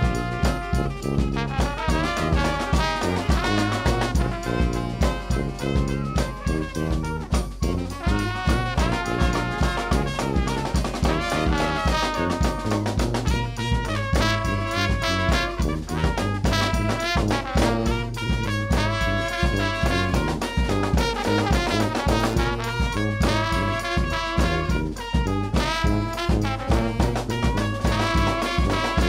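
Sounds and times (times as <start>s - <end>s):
bass drum and snare beat: 0.0s - 29.0s
saxophone: 0.0s - 29.0s
sousaphone bass line: 0.0s - 29.0s
trombone: 0.0s - 29.0s
trumpet: 0.0s - 29.0s
flute: 3.3s - 10.9s.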